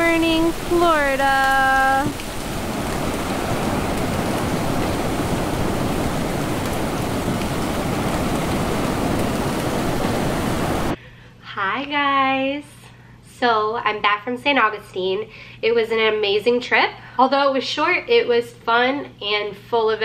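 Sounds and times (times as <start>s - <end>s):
ocean surf breaking on beach: 0.0s - 11.0s.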